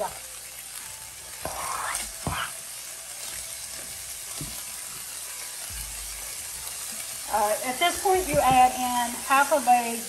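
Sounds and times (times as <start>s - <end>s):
beef sizzling in a skillet: 0.0s - 10.0s
knocks against a pan: 8.1s - 8.8s.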